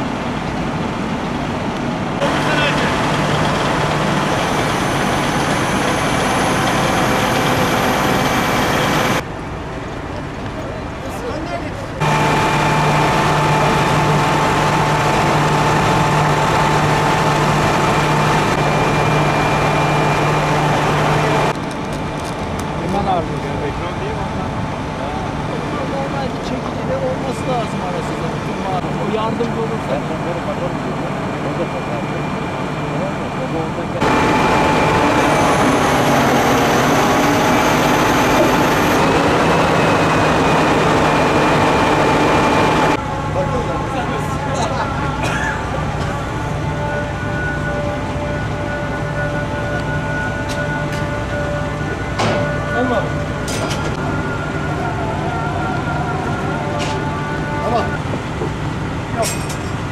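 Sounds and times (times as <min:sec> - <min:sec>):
truck diesel engine running: 0:00.0 - 0:09.4, 0:12.0 - 0:59.2
steady high whine: 0:00.0 - 0:59.9
thin high whine: 0:12.0 - 0:21.6.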